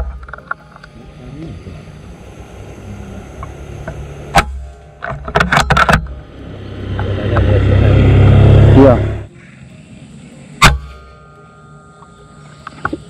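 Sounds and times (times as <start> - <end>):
clicks and clatter: 0.0 - 1.0, 3.4 - 6.3
low rumble: 1.1 - 9.3.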